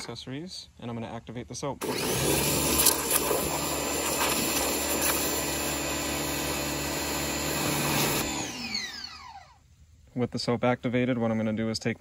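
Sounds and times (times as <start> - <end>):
water jet spraying into bucket: 1.8 - 9.0
pressure washer running: 1.8 - 9.6.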